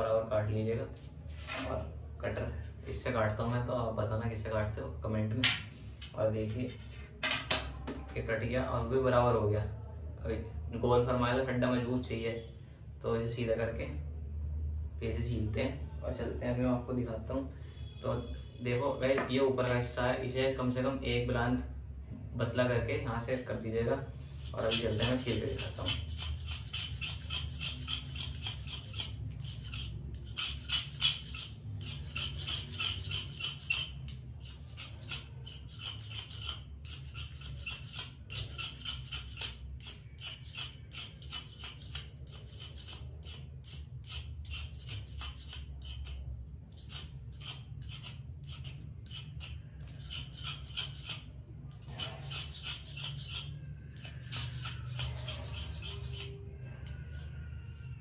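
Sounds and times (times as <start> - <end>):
blade scraping bamboo: 24.3 - 56.4.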